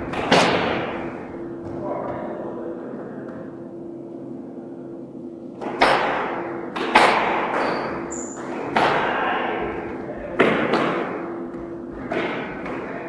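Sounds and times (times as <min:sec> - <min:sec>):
squash ball cracking off rackets: 0:05.6 - 0:09.2.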